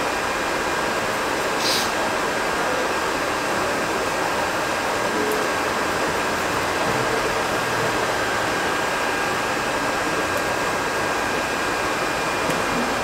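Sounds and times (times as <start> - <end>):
rush of blowing air: 1.5 - 2.0.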